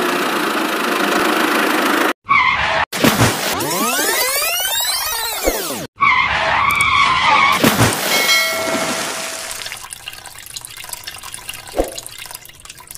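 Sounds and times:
water sloshing and dripping: 7.0s - 12.9s
toy splashing into water: 7.6s - 12.9s.

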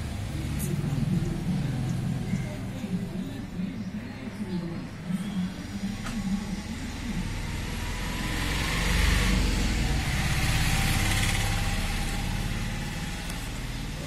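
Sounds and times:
vehicle passing by: 5.4s - 14.0s.

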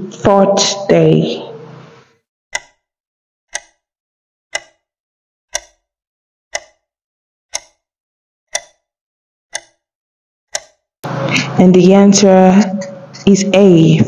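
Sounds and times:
clock ticks: 2.5s - 2.9s, 3.5s - 3.9s, 4.5s - 4.9s, 5.5s - 5.9s, 6.5s - 6.9s, 7.5s - 7.9s, 8.5s - 8.9s, 9.5s - 9.9s, 10.5s - 10.8s.

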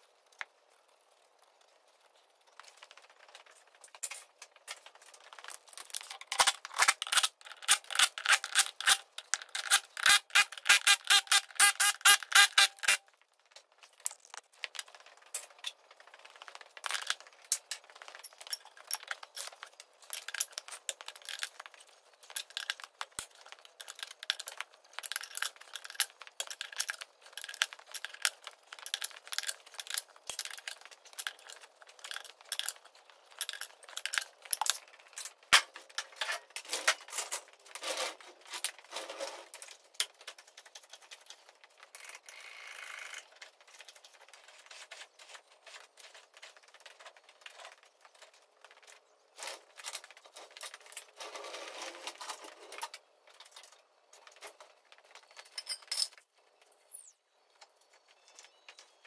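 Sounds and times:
ratchet wrench clicking: 6.9s - 13.0s
metallic clinks and rattles: 13.9s - 41.5s, 48.8s - 56.3s.

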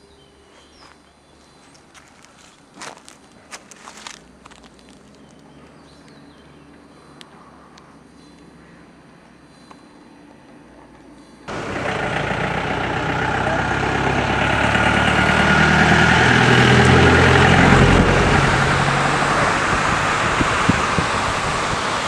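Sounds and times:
jeep engine driving past: 11.5s - 22.0s
steady rushing noise: 17.5s - 22.0s.

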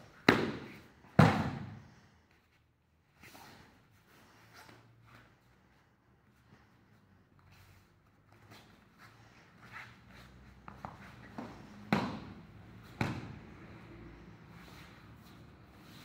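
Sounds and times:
bare feet shuffling on mats: 7.4s - 13.4s.

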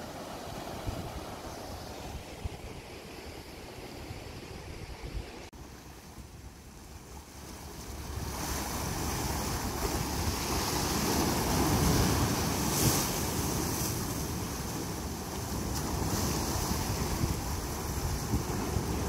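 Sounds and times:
wind buffeting microphone: 6.1s - 19.0s.

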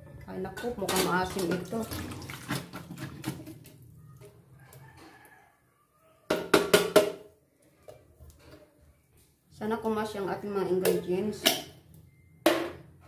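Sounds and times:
knocking on a metal tin: 6.3s - 7.2s.

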